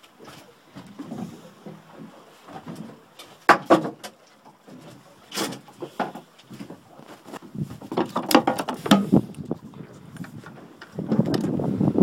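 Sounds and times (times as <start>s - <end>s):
sharp knocks and clunks: 1.0s - 4.2s, 7.8s - 9.2s.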